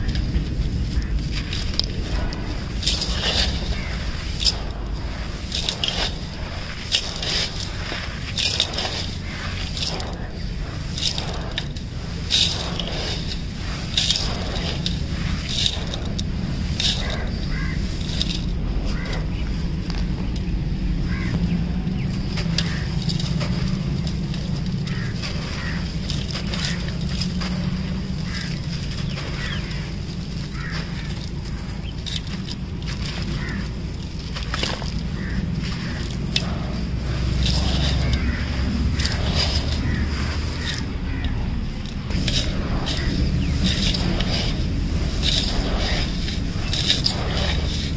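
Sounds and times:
sand pouring into a steel basin: 0:00.0 - 0:19.0, 0:22.5 - 0:47.9
low rumble: 0:00.0 - 0:47.9
pebbles clicking: 0:00.0 - 0:47.9.

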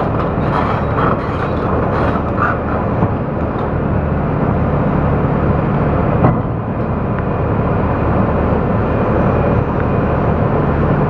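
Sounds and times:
excavator diesel engine running: 0:00.0 - 0:11.0.

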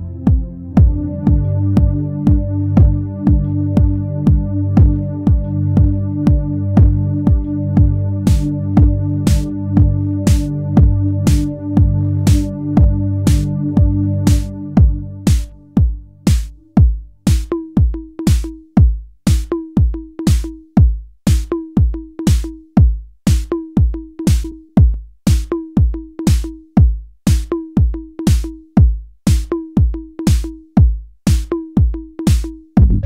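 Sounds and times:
low synth chords: 0:00.0 - 0:16.2, 0:32.8 - 0:33.0
kick drum beat: 0:00.0 - 0:33.0.

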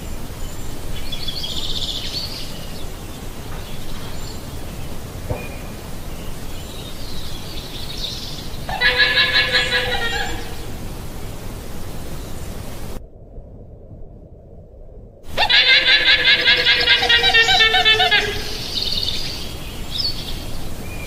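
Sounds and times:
steady hiss: 0:00.0 - 0:13.0, 0:15.3 - 0:21.0
llama calls: 0:08.7 - 0:10.7, 0:15.3 - 0:18.8.

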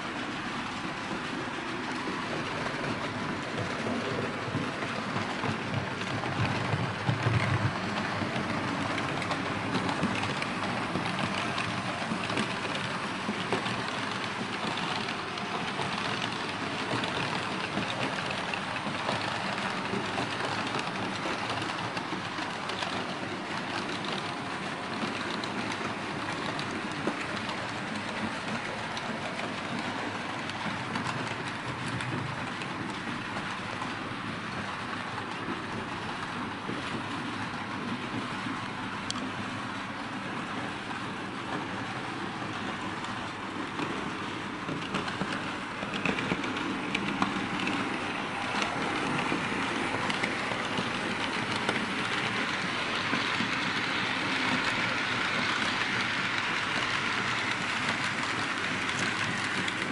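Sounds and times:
model trains rolling on metal track: 0:00.0 - 0:59.9.

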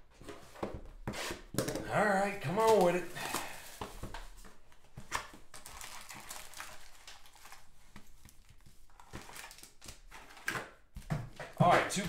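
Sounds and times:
foil packs rustling: 0:02.1 - 0:04.3, 0:05.0 - 0:10.6.

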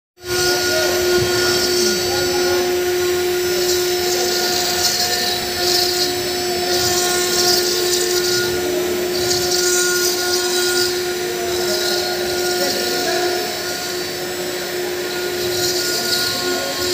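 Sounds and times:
carving machine spindle whine: 0:00.2 - 0:16.9.

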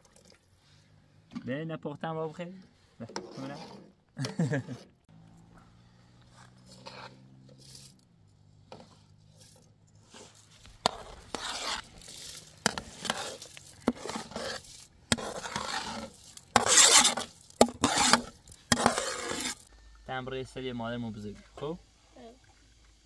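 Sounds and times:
scraping and rubbing strokes: 0:02.3 - 0:05.0, 0:06.0 - 0:19.7.

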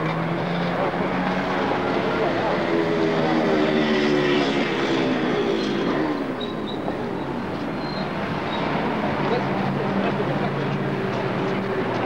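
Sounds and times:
vehicle engines running: 0:00.0 - 0:12.0.

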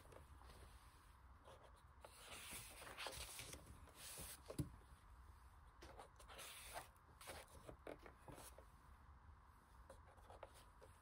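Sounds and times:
book pages rustling: 0:01.8 - 0:04.7.

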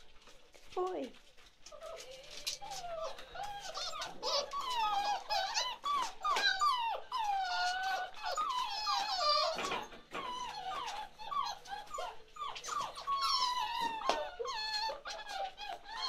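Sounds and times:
puppies whining: 0:00.0 - 0:16.0.

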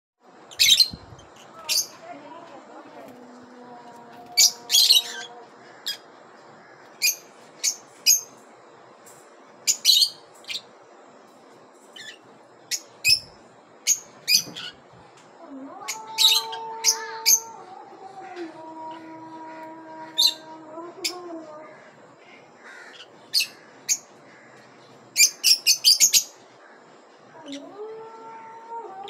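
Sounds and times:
lovebirds chirping: 0:00.5 - 0:08.4.

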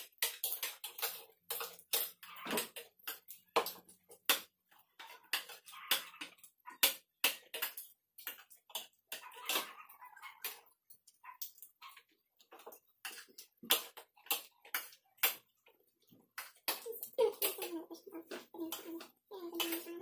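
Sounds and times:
cutlery clinking on ceramic plates: 0:05.0 - 0:10.8.

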